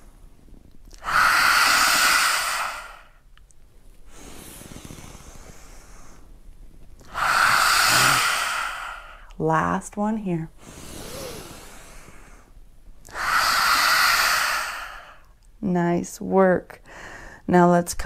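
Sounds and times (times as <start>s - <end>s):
quiet inhale: 0.0s - 3.2s, 4.0s - 6.4s, 7.0s - 9.4s, 10.6s - 15.4s, 16.8s - 17.5s
forceful breathy exhales: 1.0s - 3.2s, 7.1s - 9.3s, 10.6s - 15.3s.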